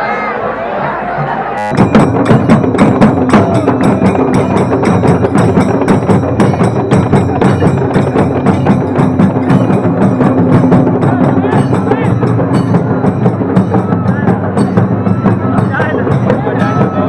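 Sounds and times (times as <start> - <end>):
barrel drums beating: 1.2 - 17.0.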